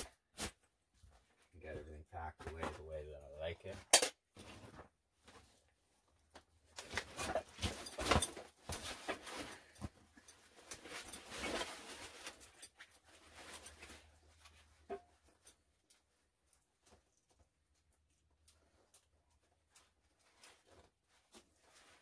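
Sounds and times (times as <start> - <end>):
bags and equipment rustling and clattering: 4.3 - 22.0.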